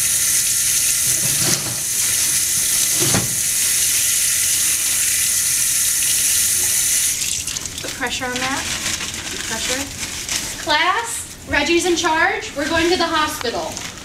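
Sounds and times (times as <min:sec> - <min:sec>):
water running from faucet: 0:00.0 - 0:09.9.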